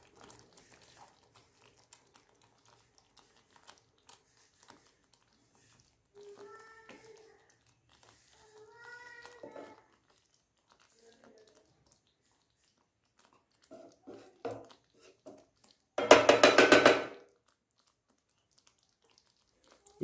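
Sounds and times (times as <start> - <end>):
wooden spatula knocking on pan: 16.0 - 17.2.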